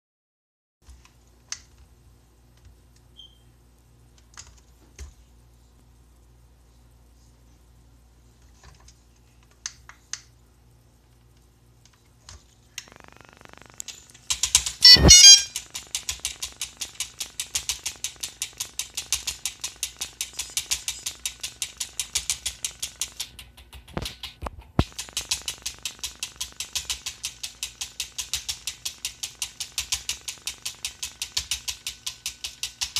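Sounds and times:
faint beeps: 14.8s - 15.6s
short tones: 14.8s - 15.6s.

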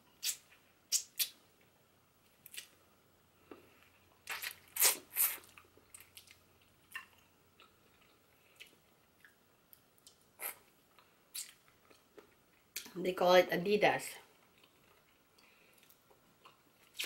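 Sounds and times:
wet mouth clicks: 0.2s - 1.4s
person chewing: 3.4s - 12.9s, 14.3s - 17.0s.

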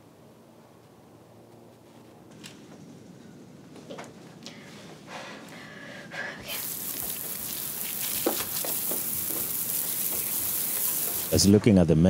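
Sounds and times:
sprinkler spray hissing: 6.5s - 11.5s.

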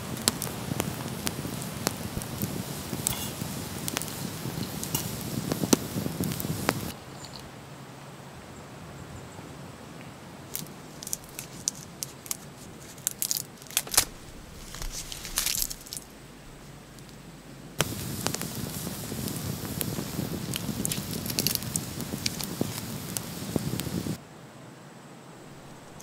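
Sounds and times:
campfire crackling and popping: 0.0s - 7.6s, 10.5s - 24.2s, 25.4s - 26.0s
knife scraping root skin: 10.6s - 16.1s.

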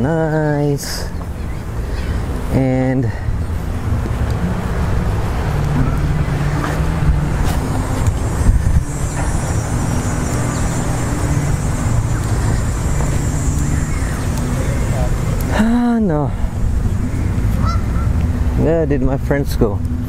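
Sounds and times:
low engine hum: 0.0s - 20.0s
wind on microphone: 1.1s - 15.6s.

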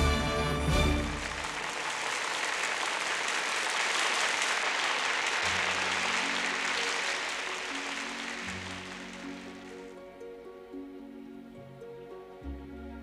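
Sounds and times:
crowd applauding: 0.0s - 10.0s
soft sustained music notes: 5.6s - 13.0s.

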